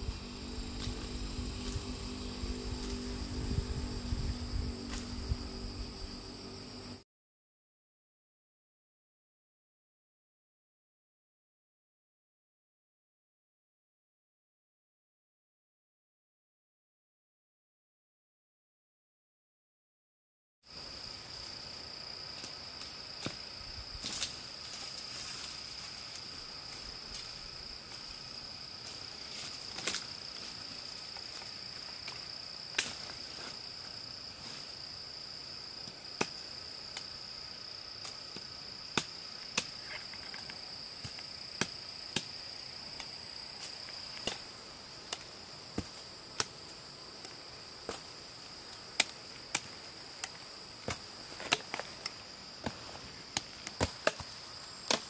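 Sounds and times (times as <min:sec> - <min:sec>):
insects trilling: 0:00.0 - 0:07.0, 0:20.7 - 0:55.0.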